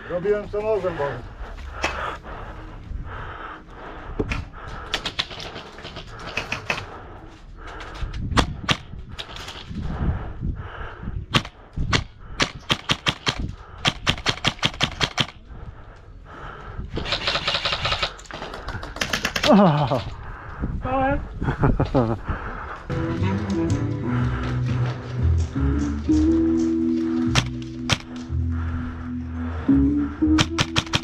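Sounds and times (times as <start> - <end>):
airsoft guns firing: 11.3 - 15.4, 17.0 - 19.9, 30.4 - 31.0.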